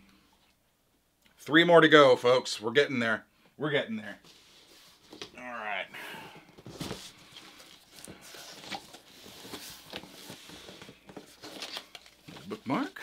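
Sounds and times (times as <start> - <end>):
cardboard rustling: 6.5 - 13.0.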